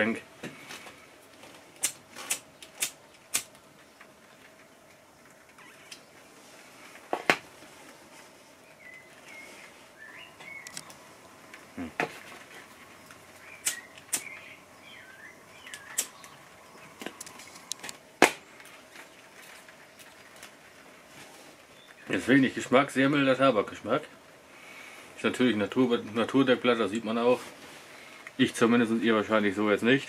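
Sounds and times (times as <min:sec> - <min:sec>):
sharp clicks and small pops: 0:01.8 - 0:03.9, 0:13.1 - 0:14.4, 0:15.7 - 0:16.4.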